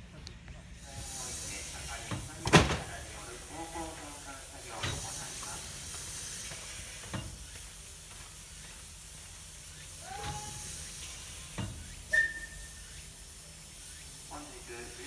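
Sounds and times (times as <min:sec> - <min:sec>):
steam hissing: 0:00.8 - 0:15.0
high-pitched whistle tone: 0:12.1 - 0:13.0.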